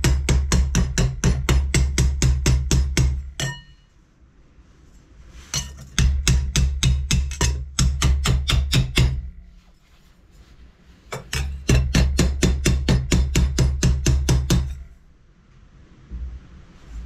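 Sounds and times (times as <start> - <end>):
rapid hammer blows on sheet steel: 0.0 - 3.7, 5.5 - 9.4, 11.2 - 14.9.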